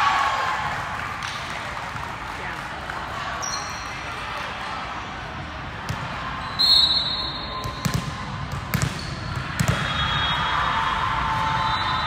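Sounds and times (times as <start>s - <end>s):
referee's whistle: 6.4s - 7.9s, 9.0s - 12.0s.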